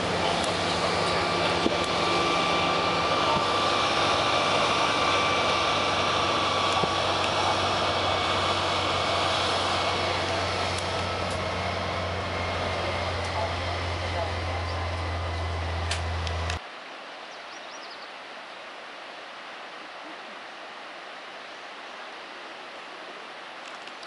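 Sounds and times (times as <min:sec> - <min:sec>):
bus engine drone: 0:00.0 - 0:16.7
road and wind noise: 0:00.0 - 0:24.0.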